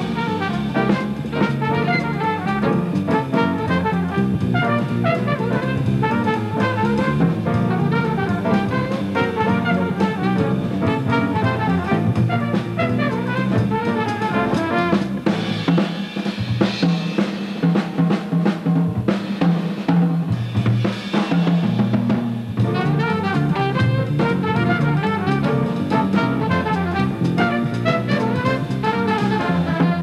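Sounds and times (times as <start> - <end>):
saxophone and trumpet jazz: 0.0 - 15.9, 22.6 - 30.0
drum kit break: 0.0 - 30.0.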